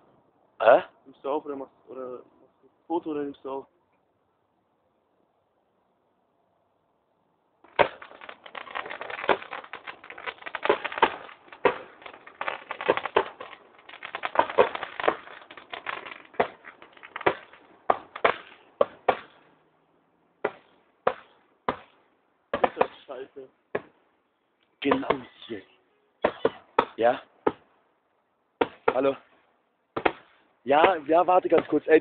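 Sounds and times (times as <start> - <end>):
fireworks crackling and popping: 7.6 - 19.6, 20.4 - 23.3, 30.0 - 32.0
fireworks bangs: 7.7 - 19.6, 22.6 - 23.1.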